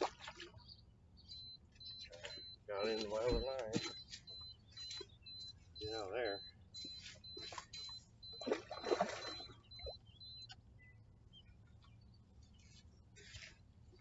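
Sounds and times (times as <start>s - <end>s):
water splashing: 0.0s - 0.6s, 5.8s - 10.0s
electronic bite alarm beeping: 1.2s - 10.6s.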